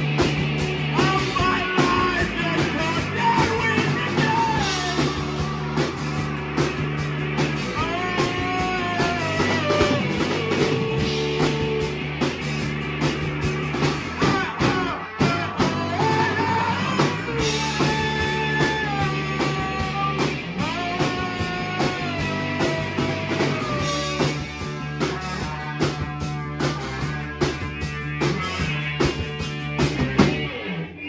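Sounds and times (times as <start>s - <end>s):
bass guitar: 0.0s - 31.0s
drum kit: 0.0s - 31.0s
electric guitar: 0.0s - 31.0s
man singing: 0.9s - 5.8s, 7.7s - 12.0s, 14.2s - 24.4s.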